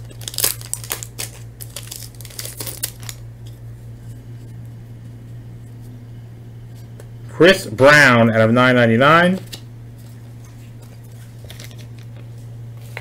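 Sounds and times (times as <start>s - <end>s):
foil wrapper crinkling and tearing: 0.0s - 3.2s, 11.2s - 12.2s
steady low hum: 0.0s - 13.0s.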